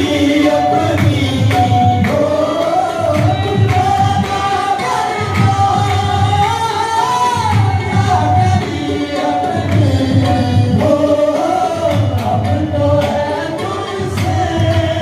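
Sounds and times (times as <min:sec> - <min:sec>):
harmonium: 0:00.0 - 0:15.0
male lead singer: 0:00.0 - 0:15.0
men's chorus singing: 0:00.0 - 0:15.0
group hand-clapping: 0:00.9 - 0:06.0.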